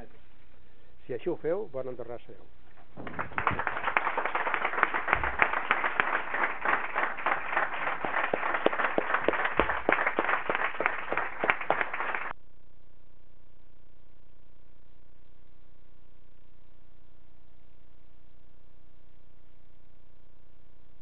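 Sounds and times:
hands clapping: 3.0 - 12.4.

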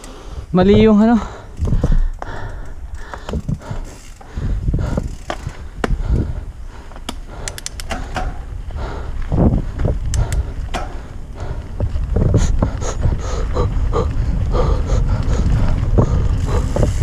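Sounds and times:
bike clicks and rattles: 0.0 - 17.0
tyres rumbling on dirt: 0.0 - 17.0
wind buffeting microphone: 0.0 - 17.0.

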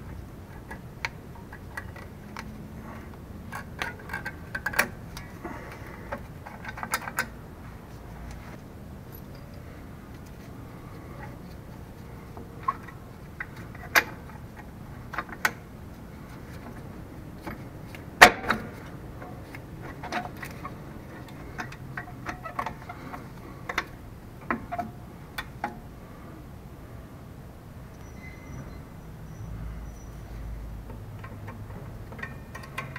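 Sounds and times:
metal brake parts clicking: 0.0 - 7.4, 9.1 - 25.8, 30.8 - 32.9.

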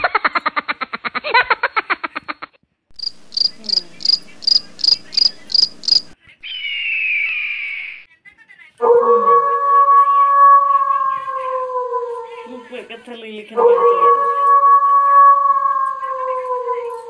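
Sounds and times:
cricket chirping: 3.0 - 6.2
long falling high tone: 8.8 - 12.6, 13.6 - 17.0.

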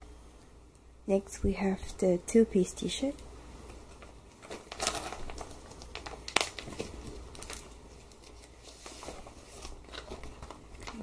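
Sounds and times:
plastic bag crinkling: 3.9 - 11.0.

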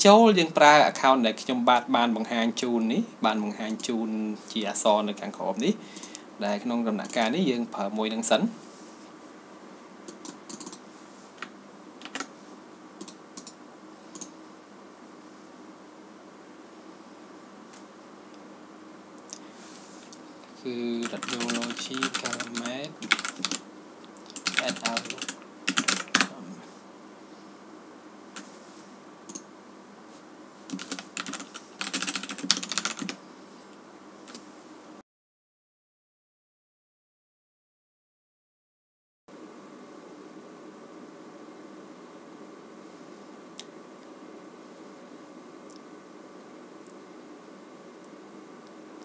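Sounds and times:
faint steady hum: 0.0 - 35.0, 39.3 - 49.0
computer keyboard clicks: 10.1 - 10.8
typing on computer keyboard: 10.1 - 10.8, 12.0 - 12.3, 21.0 - 23.6, 24.3 - 26.3, 30.7 - 33.2.

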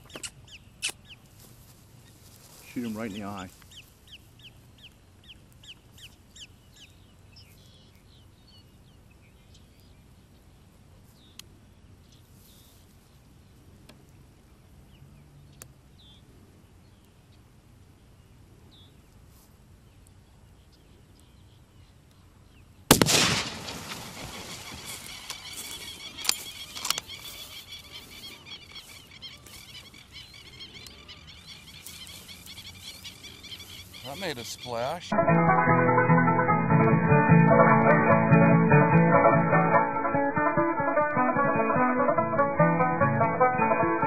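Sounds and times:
gunshot: 22.9 - 24.0
bird calling: 23.7 - 35.2.

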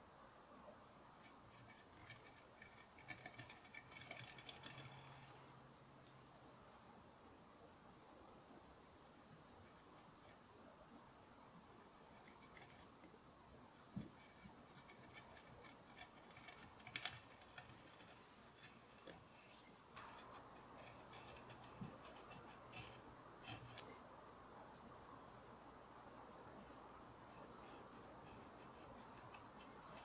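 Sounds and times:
gouge scraping wood: 1.2 - 5.4, 11.8 - 12.9, 13.8 - 23.9, 27.2 - 30.0.

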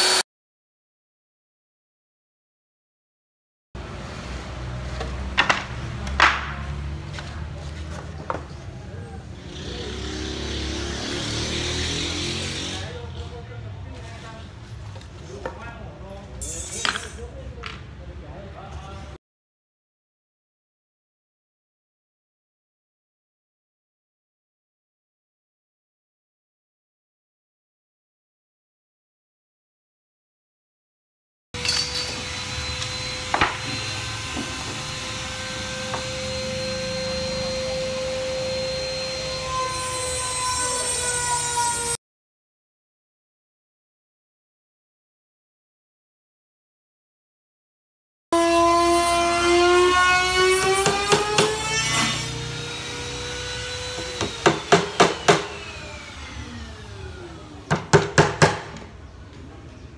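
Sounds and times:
power tool motor whining: 0.0 - 0.2, 31.6 - 42.0, 48.4 - 57.6
hammer driving nails into wood: 54.0 - 55.5, 57.7 - 58.8.

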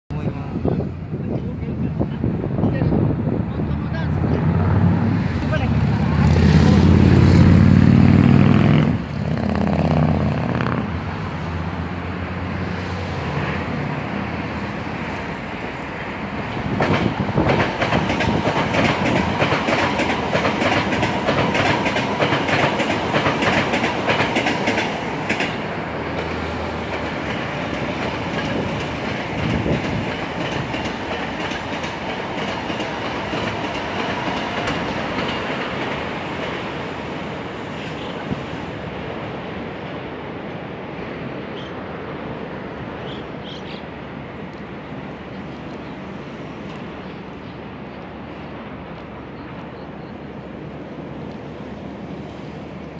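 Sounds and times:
train wheels clattering over rail joints: 16.4 - 36.8.

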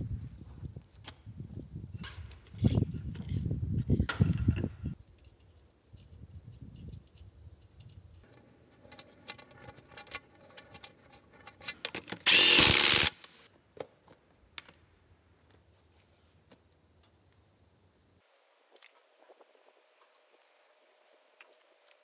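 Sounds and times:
impact wrench burst: 12.3 - 13.2.

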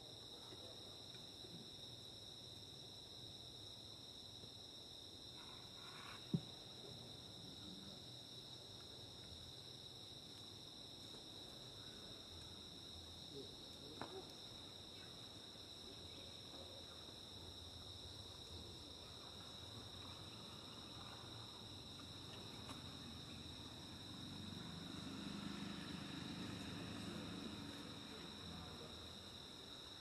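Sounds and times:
insect chorus high whines: 18.5 - 30.0.

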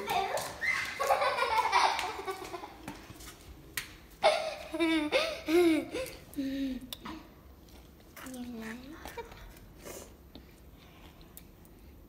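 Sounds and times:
children laughing: 0.0 - 3.0, 4.2 - 6.3.

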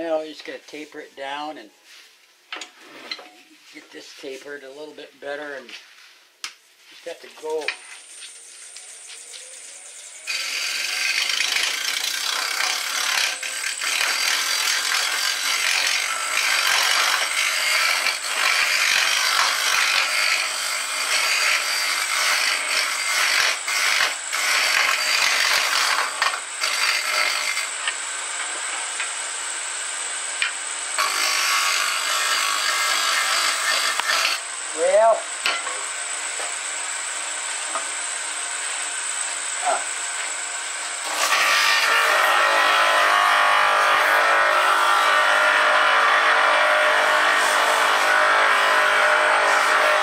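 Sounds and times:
lathe tool scraping spinning wood: 10.3 - 29.1, 30.4 - 36.7, 40.2 - 50.0.

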